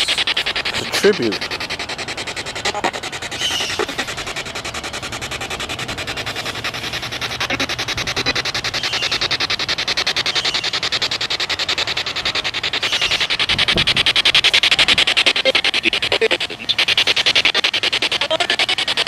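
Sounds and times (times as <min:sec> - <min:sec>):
chopped radio static: 0:00.0 - 0:01.8, 0:02.6 - 0:04.2, 0:07.2 - 0:09.4, 0:13.3 - 0:19.0
snatches of broadcast sound: 0:15.2 - 0:16.8.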